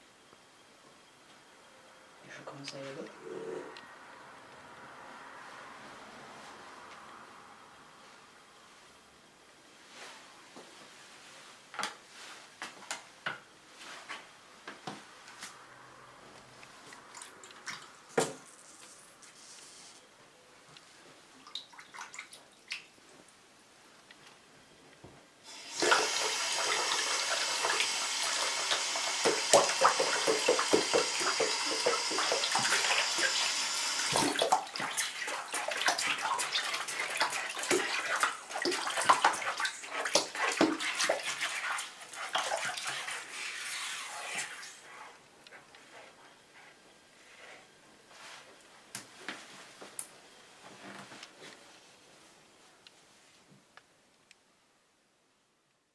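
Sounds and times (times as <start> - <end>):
water splashing: 25.5 - 44.6
water pouring into bathtub: 25.5 - 44.8.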